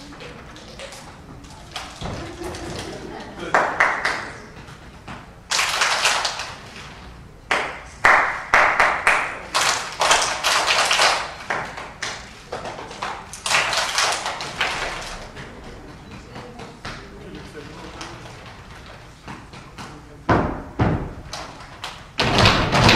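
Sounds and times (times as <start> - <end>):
children clapping hands: 1.7 - 4.5, 5.5 - 6.7, 7.5 - 15.4.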